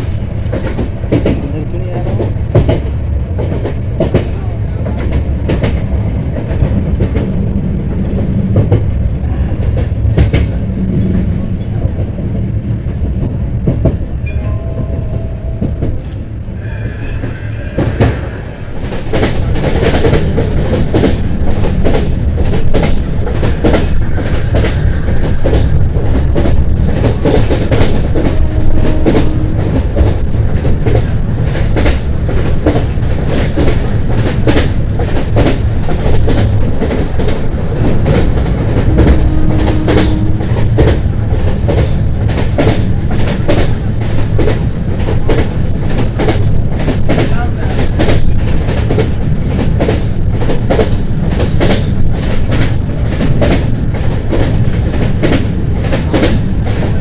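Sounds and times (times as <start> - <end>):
wheels rumbling on rails: 0.0 - 57.0.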